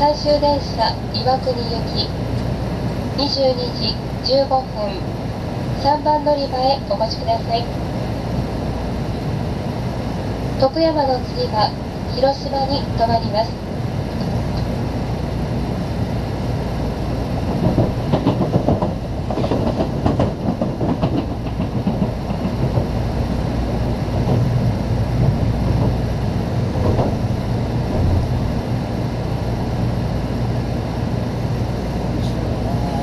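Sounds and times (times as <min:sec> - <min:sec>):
low rumble of running train: 0:00.0 - 0:33.0
wheels clacking over rail joints: 0:17.5 - 0:23.1.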